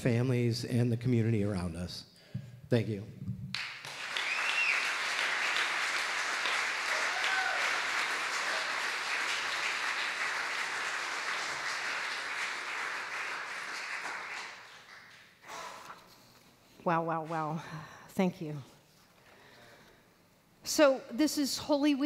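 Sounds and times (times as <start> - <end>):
congregation applauding: 3.5 - 15.4.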